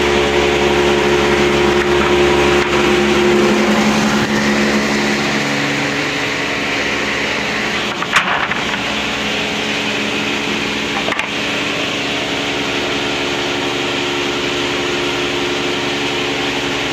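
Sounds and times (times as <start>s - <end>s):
planer running: 0.0s - 16.9s
sharp knocks: 7.8s - 9.4s.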